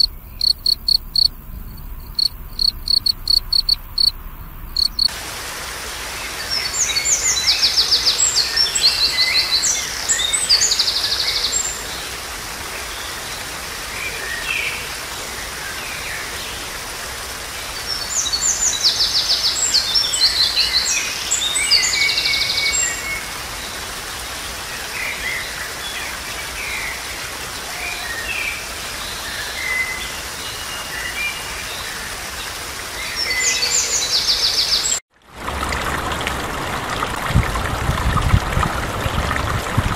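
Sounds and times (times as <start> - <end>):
songbird trilling and chirping: 0.0 - 5.1
small waterfall splashing: 4.8 - 39.9.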